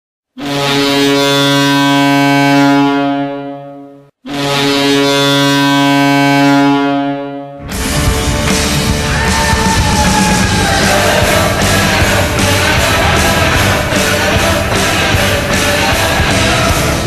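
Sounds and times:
goal horn blasts: 0.4 - 8.4
rock music: 7.6 - 17.0.

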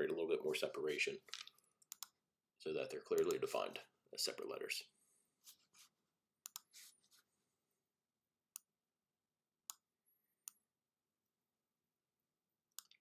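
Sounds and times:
computer mouse clicks: 1.5 - 2.2, 6.4 - 6.7, 12.8 - 13.0.

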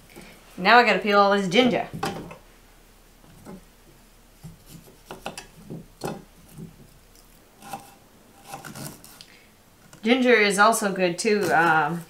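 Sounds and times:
knife scraping ginger peel: 7.2 - 10.1, 11.2 - 12.0.

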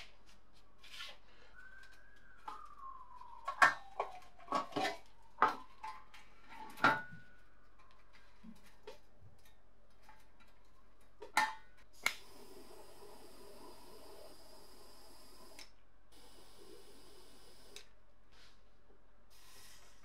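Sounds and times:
torch flame hissing: 12.0 - 15.6, 16.2 - 17.8.

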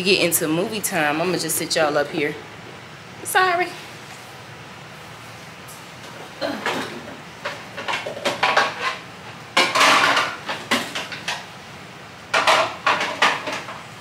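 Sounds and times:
dishes clattering and clinking: 6.4 - 9.0, 9.6 - 11.5, 12.3 - 13.8.

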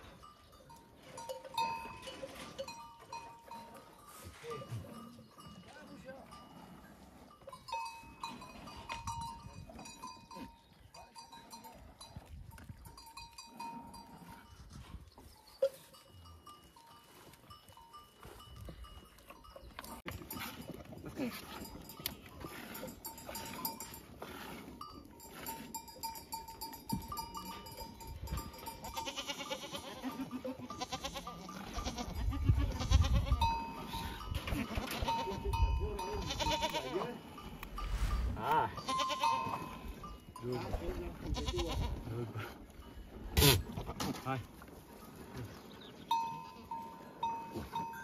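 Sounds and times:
livestock bells ringing: 0.0 - 14.7, 15.3 - 24.2, 24.8 - 41.8, 46.0 - 48.0
goats bleating: 28.8 - 33.8, 34.4 - 37.2, 38.4 - 39.8, 41.1 - 42.4.

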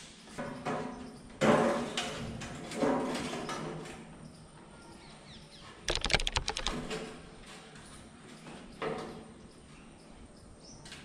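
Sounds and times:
rattle of sharp metal clicks: 5.9 - 7.1.

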